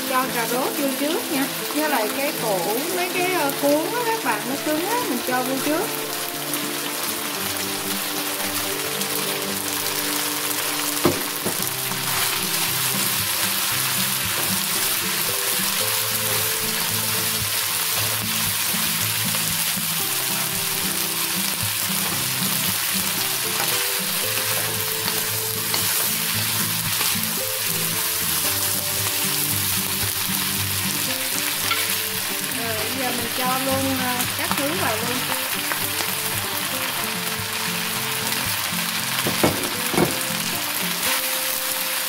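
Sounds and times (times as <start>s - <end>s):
background music: 0.0s - 42.0s
food sizzling in a wok: 0.0s - 42.0s
sharp knock: 11.0s - 11.6s.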